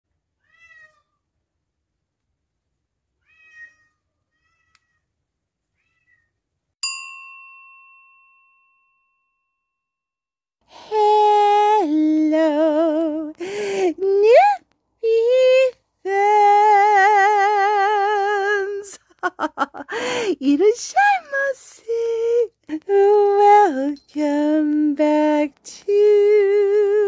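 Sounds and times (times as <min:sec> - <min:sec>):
cat meowing: 0:00.4 - 0:01.2, 0:03.2 - 0:05.1, 0:05.7 - 0:06.3
bell-like ding: 0:06.8 - 0:09.9.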